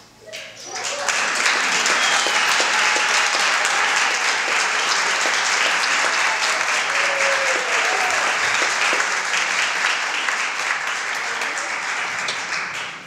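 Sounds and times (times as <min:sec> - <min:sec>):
audience applauding: 0:00.4 - 0:13.0.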